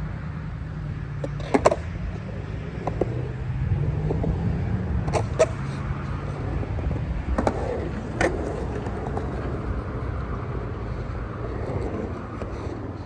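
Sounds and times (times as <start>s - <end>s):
skateboard wheels rolling on concrete: 0.0s - 13.0s
skateboard knocks: 2.7s - 3.3s.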